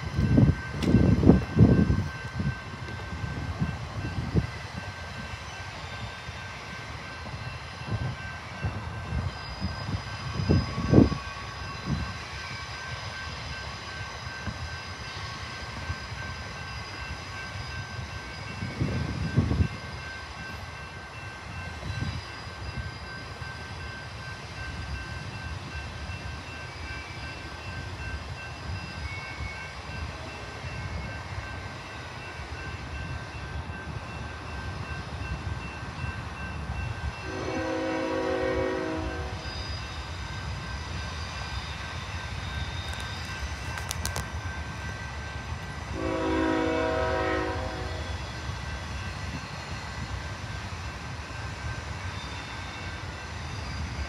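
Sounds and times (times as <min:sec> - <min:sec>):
freight train rumble: 0:00.0 - 0:54.0
locomotive air horn: 0:37.2 - 0:39.4, 0:45.9 - 0:48.1.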